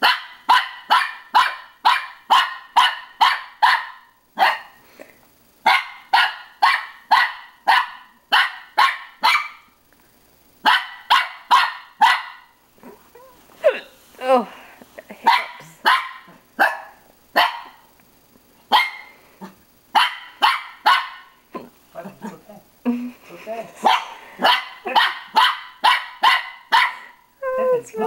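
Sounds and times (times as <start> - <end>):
small dog barking: 0.0 - 4.8, 5.6 - 9.8, 10.6 - 12.6, 15.2 - 17.9, 18.7 - 21.7, 23.8 - 27.2.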